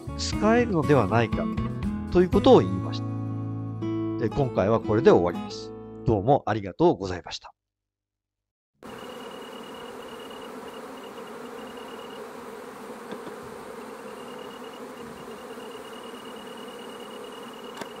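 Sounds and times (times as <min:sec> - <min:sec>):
honeybees humming: 0:08.8 - 0:18.0.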